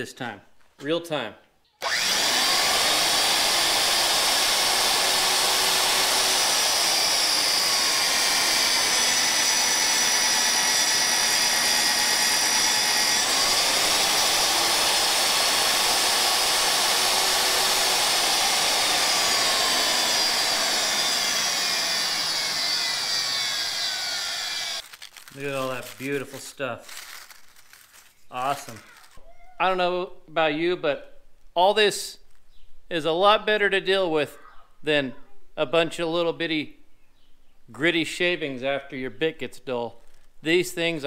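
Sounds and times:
magnetic drill boring through steel: 1.8s - 24.8s.

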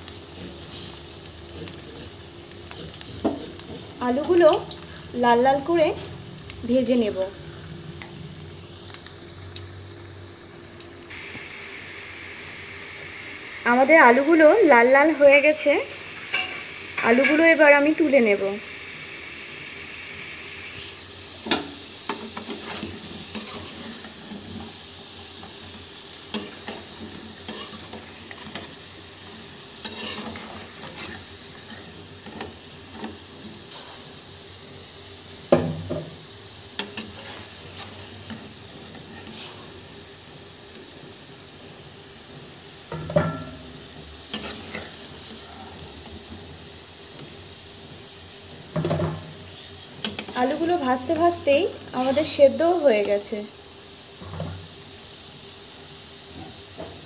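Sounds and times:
potatoes sizzling in oil: 0.0s - 57.0s
metal spatula scraping a pan: 20.8s - 24.8s, 26.3s - 34.2s, 36.8s - 39.9s, 42.9s - 46.5s, 51.9s - 52.7s.

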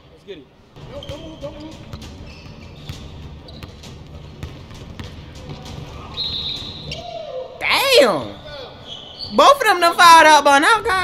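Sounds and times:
basketball bouncing on wooden floor: 1.0s - 6.1s.

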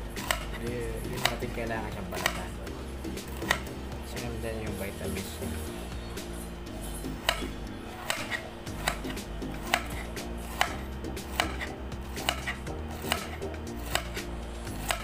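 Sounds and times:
background music: 0.0s - 15.0s
knife slicing cucumber: 0.2s - 1.4s, 2.1s - 2.5s, 3.3s - 3.7s, 7.2s - 15.0s
knife clicking on plate: 3.4s - 3.7s, 7.2s - 14.2s.

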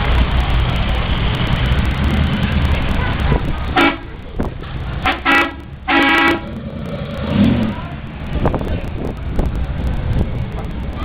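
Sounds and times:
cars driving past: 0.0s - 11.0s
car horn toots: 2.9s - 4.4s, 5.0s - 6.5s.

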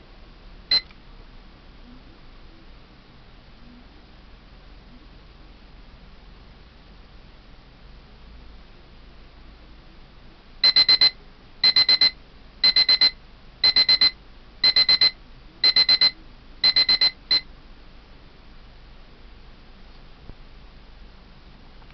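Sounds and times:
kitchen timer beeping: 10.6s - 17.4s.

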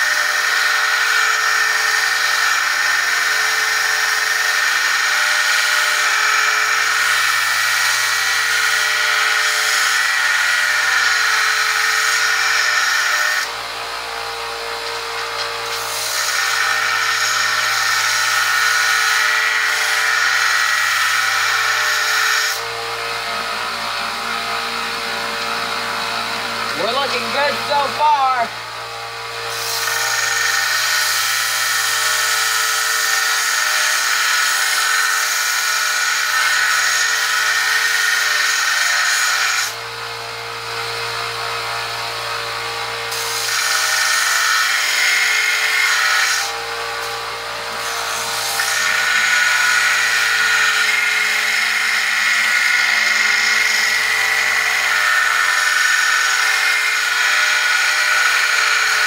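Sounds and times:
belt sander motor hum: 7.0s - 31.8s.

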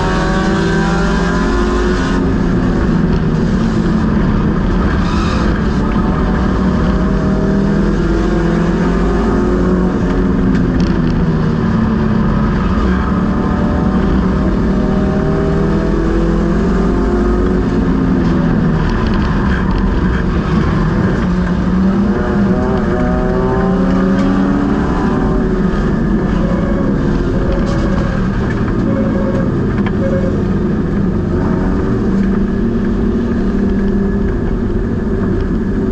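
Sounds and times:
race car engine revving: 0.0s - 35.9s
wind and road noise: 0.0s - 35.9s.

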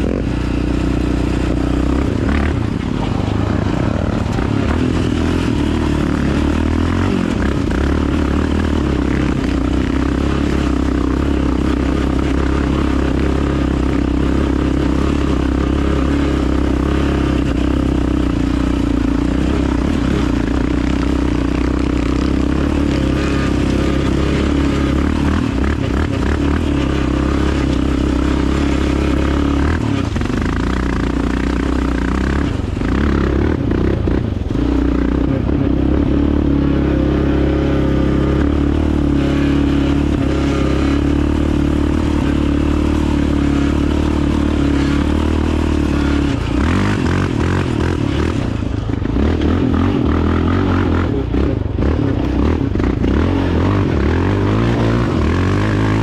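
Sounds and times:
dirt bike engine running: 0.0s - 56.0s.

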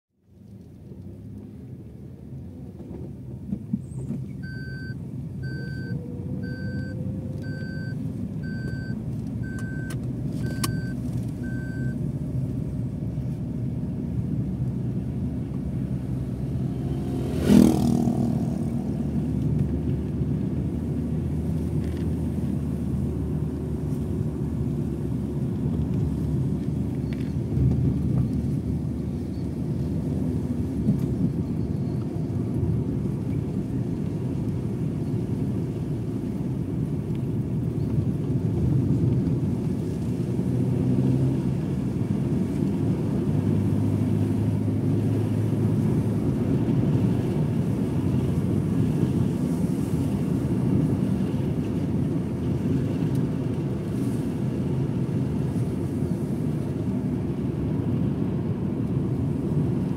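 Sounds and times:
vehicle rumbling along road: 0.2s - 59.9s
short electronic beeps: 4.4s - 12.0s
motorcycle passing close: 16.4s - 19.8s.

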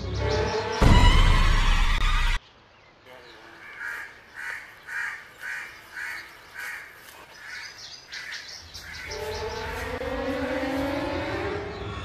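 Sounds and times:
dark suspense music: 0.0s - 2.4s, 8.9s - 12.0s
crow cawing: 3.6s - 9.4s.

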